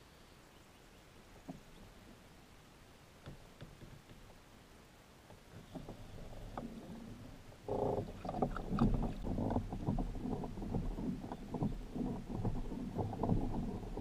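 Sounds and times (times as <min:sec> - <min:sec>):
water lapping against kayak hull: 0:05.4 - 0:14.0.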